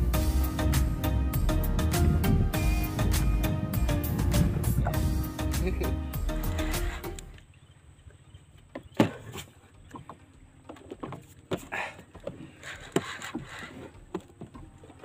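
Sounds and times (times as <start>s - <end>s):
short rasping bursts: 6.2s - 7.2s.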